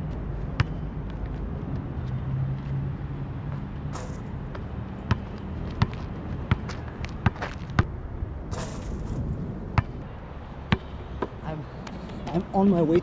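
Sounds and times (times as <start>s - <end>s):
basketball bouncing on asphalt: 0.5s - 1.2s, 3.5s - 9.2s, 9.8s - 11.4s.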